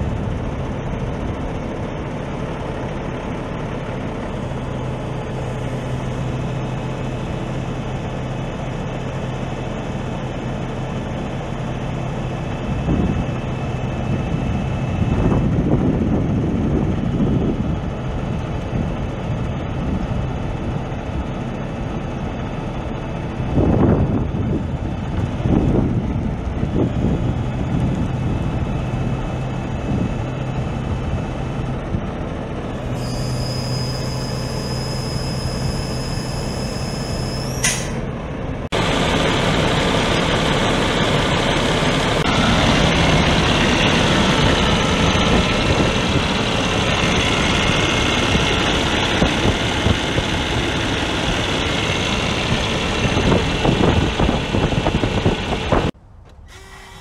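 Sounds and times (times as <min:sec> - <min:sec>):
diesel engine idling: 0:00.0 - 0:57.0
high whine and rising squeal: 0:32.7 - 0:38.1.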